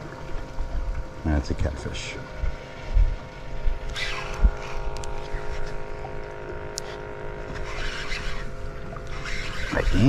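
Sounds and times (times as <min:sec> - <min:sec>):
wind rumble on microphone: 0:00.0 - 0:06.0
small motor humming: 0:02.2 - 0:10.0.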